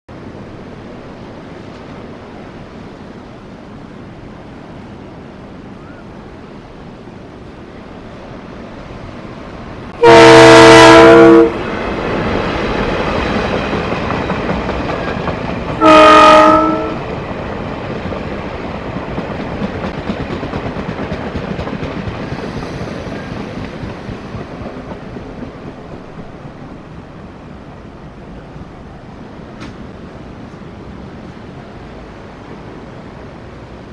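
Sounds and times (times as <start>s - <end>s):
train rumbling on rails: 0.1s - 33.9s
train horn blasts: 10.0s - 11.6s, 15.8s - 17.0s.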